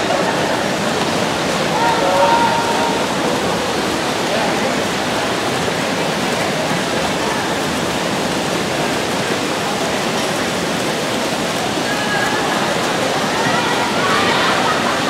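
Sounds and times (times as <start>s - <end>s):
swimmers splashing and kicking: 0.1s - 5.4s.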